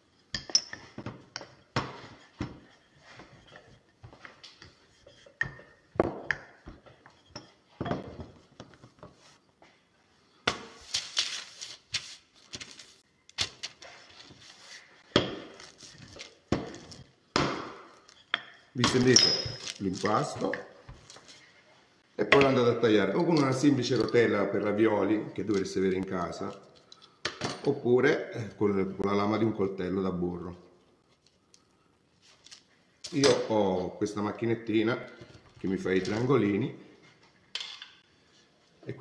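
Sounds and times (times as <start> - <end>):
baking paper rustling: 10.8 - 17.0, 18.9 - 21.5.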